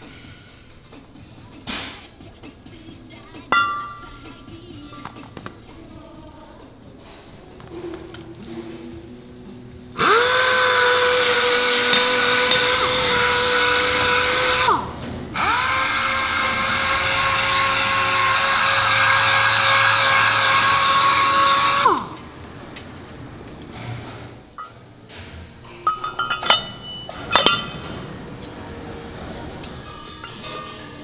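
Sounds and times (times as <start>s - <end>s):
pneumatic orbital sander whining: 10.0s - 22.2s.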